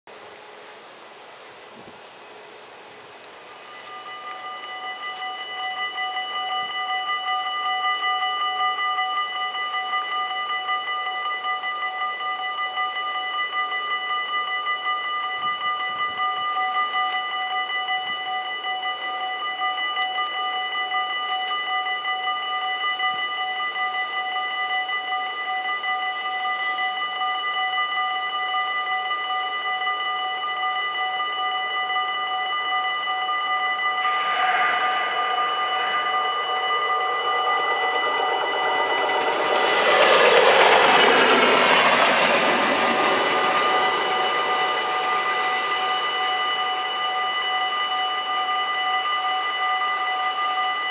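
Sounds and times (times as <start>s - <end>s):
train passing at speed: 32.9s - 48.9s.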